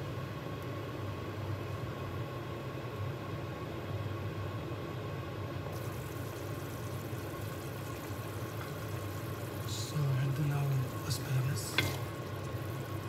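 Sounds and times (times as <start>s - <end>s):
soup boiling on gas burner: 4.5s - 13.0s.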